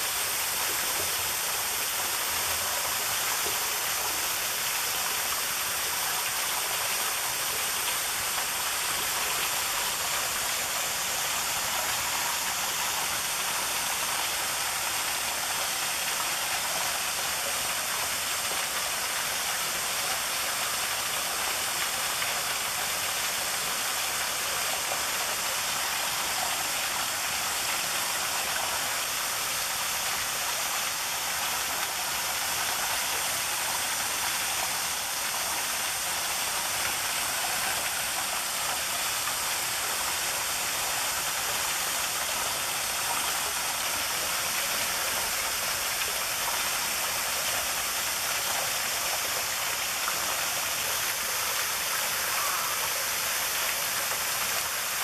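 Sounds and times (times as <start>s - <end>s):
small waterfall splashing on rocks: 0.0s - 55.0s.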